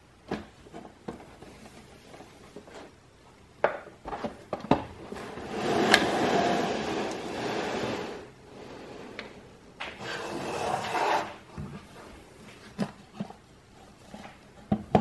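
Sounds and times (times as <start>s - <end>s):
cases sliding across wood: 5.1s - 12.1s.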